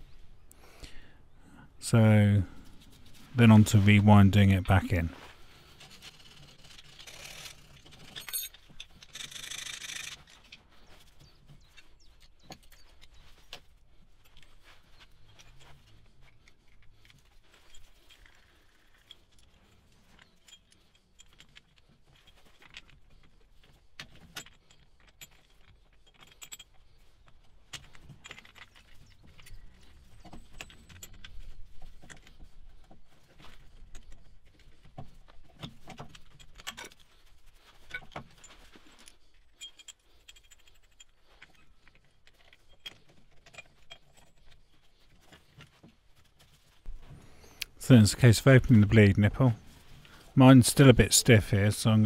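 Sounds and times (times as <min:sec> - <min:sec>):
metallic clinks and rattles: 0:05.7 - 0:46.8.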